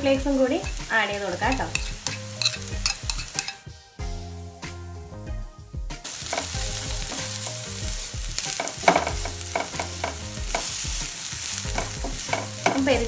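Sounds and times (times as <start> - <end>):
food sizzling in oil: 0.0 - 3.7, 6.0 - 13.0
quiet background music: 0.0 - 13.0
spatula stirring and scraping: 0.5 - 3.6, 6.1 - 13.0
knocks against pan: 8.5 - 10.7, 11.8 - 12.9.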